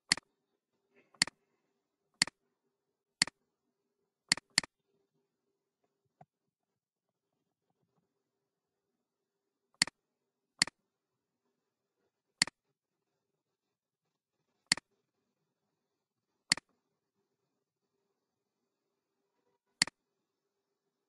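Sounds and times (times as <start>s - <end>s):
mouse button clicks: 4.3s - 4.7s.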